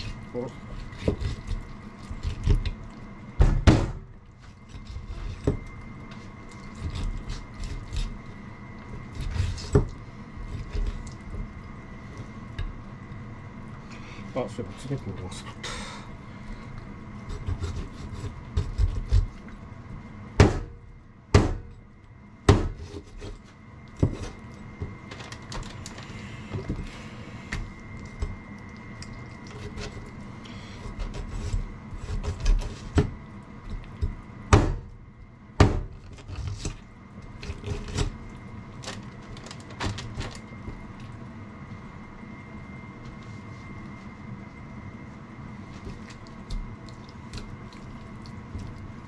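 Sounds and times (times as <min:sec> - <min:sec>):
faint steady whine: 0:00.0 - 0:49.0
sharp knocks and thuds: 0:03.4 - 0:04.0, 0:20.4 - 0:20.7, 0:21.3 - 0:21.7, 0:22.5 - 0:22.8, 0:34.0 - 0:34.9, 0:35.6 - 0:36.0.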